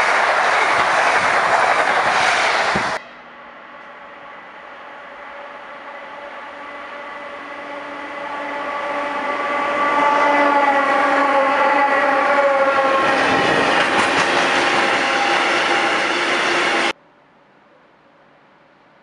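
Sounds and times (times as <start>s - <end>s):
locomotive humming whine: 0.0s - 17.0s
wheels clacking over rail joints: 13.0s - 16.0s.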